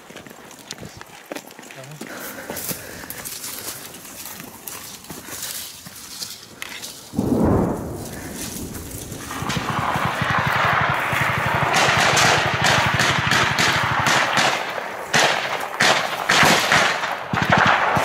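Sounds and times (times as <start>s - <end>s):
automatic gunfire bursts: 9.1s - 18.0s.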